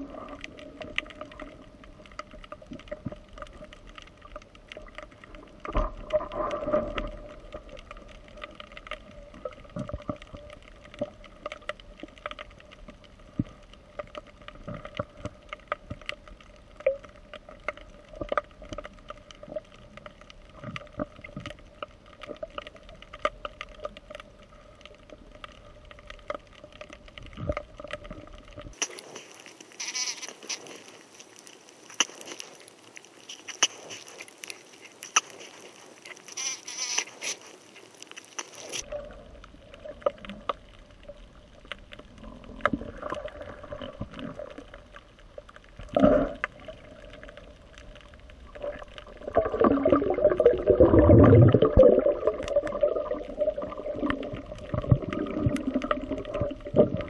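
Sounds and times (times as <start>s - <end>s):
steady underwater hum: 0.0s - 57.0s
underwater clicks and crackling: 0.0s - 57.0s
gurgling rumble: 38.8s - 57.0s.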